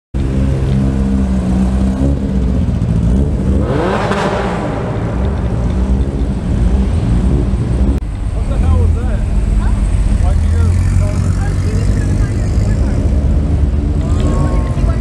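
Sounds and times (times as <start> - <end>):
car engines running indoors: 0.2 - 15.0
car revving up passing by: 0.4 - 8.0.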